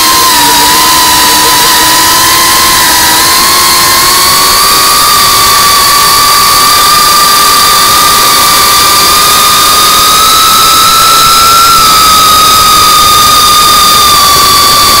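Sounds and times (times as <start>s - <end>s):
quadcopter motors whining: 0.0s - 15.0s.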